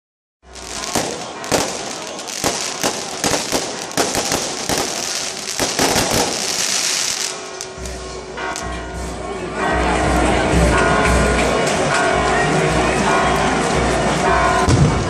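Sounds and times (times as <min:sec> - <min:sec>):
firecracker bangs and crackling: 0:00.5 - 0:08.7.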